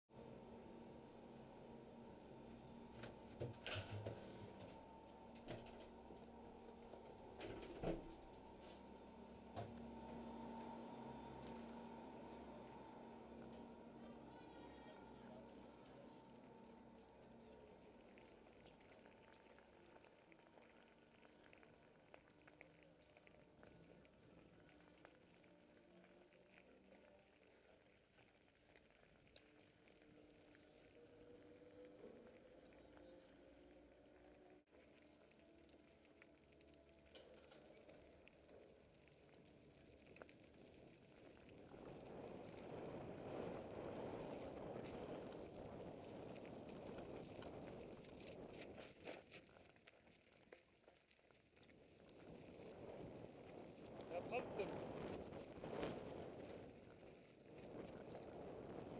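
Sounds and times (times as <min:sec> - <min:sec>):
bike tyres rolling on gravel: 0:01.7 - 0:34.9, 0:35.7 - 0:58.9
faint muffled crackling: 0:01.8 - 0:58.9
small clicks and rattles: 0:35.7 - 0:42.7
wind on microphone: 0:41.4 - 0:49.3, 0:52.2 - 0:58.9.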